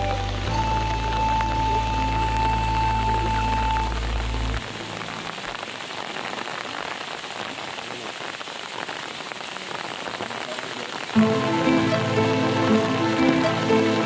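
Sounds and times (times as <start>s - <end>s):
background music: 0.0s - 4.6s, 11.2s - 14.0s
steady rain falling: 0.0s - 14.0s.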